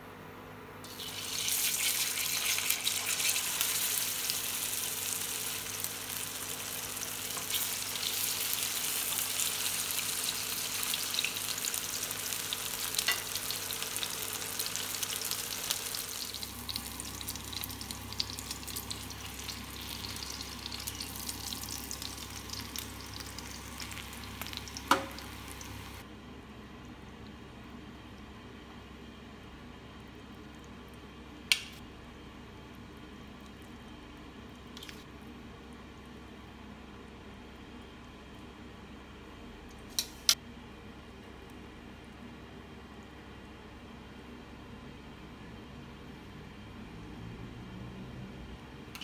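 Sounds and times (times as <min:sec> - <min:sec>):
fish sizzling in hot oil: 0:00.9 - 0:26.0.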